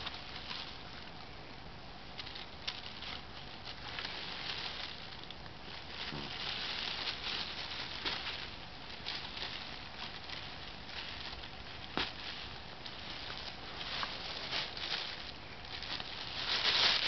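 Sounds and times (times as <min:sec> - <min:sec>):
plastic bag crinkling and rustling: 0:00.0 - 0:01.4, 0:02.0 - 0:17.0.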